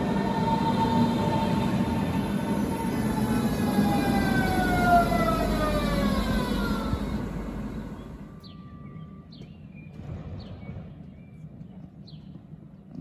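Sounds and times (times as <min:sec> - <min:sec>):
electric train motor whine: 0:00.0 - 0:08.4
train rumble: 0:00.0 - 0:12.8
bird chirps: 0:07.9 - 0:11.4.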